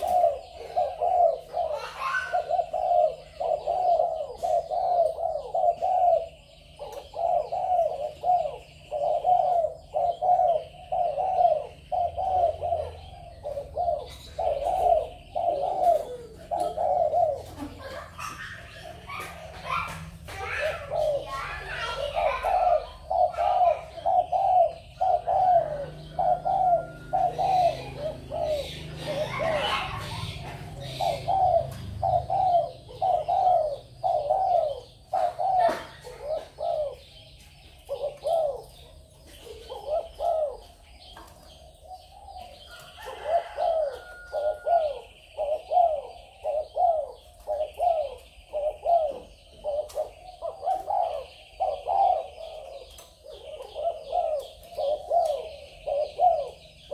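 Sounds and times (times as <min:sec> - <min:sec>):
doves cooing: 0:00.0 - 0:56.9.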